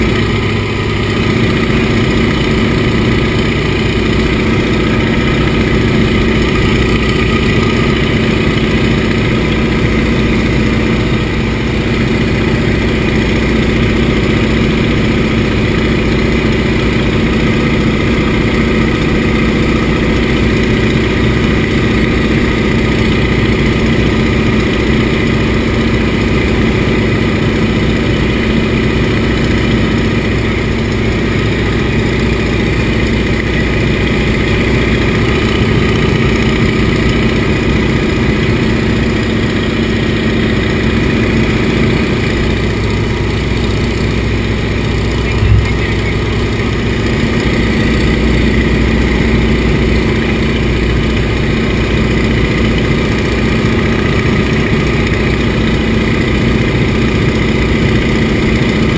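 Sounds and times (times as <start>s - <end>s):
propeller plane engine in cockpit: 0.0s - 58.9s
short thump: 45.3s - 45.9s.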